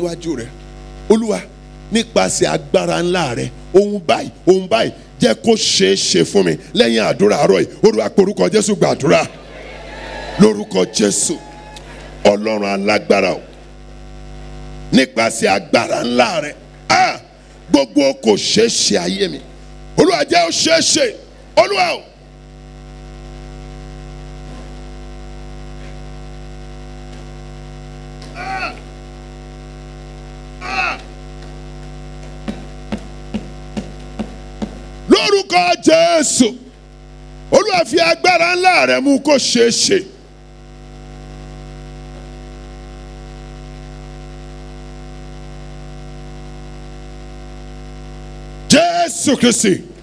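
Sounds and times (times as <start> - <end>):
electrical mains hum: 0.0 - 50.0
person exclaiming: 28.2 - 28.9, 30.6 - 31.2.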